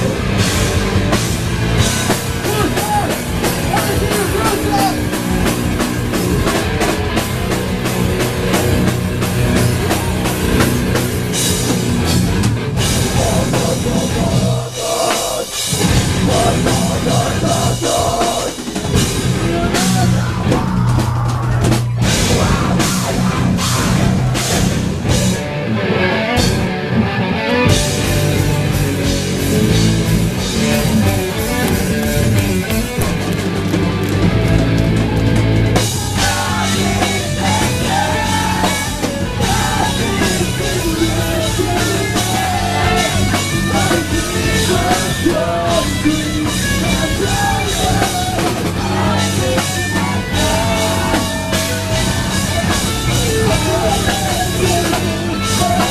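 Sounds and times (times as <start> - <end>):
live rock band playing: 0.0 - 55.9.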